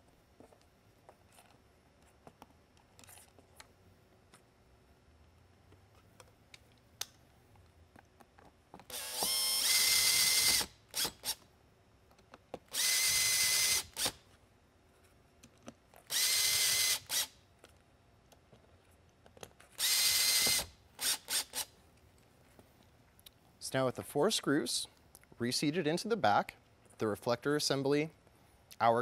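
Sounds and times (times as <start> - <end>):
cordless drill motor whine: 8.9 - 11.4, 12.7 - 14.2, 16.1 - 17.3, 19.8 - 21.7.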